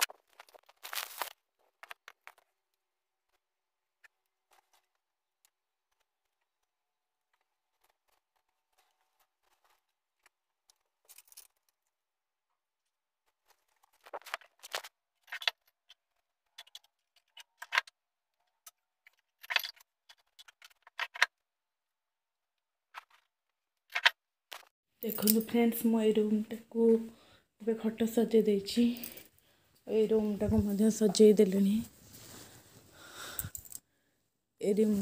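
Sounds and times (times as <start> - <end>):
household things clicking and rustling: 4.0 - 12.0, 13.2 - 21.4, 33.2 - 33.8.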